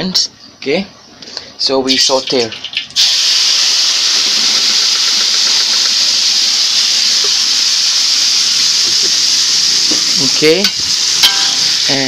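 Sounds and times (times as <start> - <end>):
spice paste sizzling in oil: 3.0 - 12.0.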